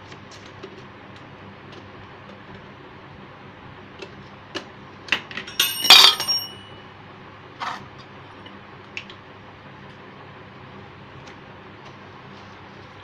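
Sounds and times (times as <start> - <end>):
metallic clink ringing: 5.5 - 6.8.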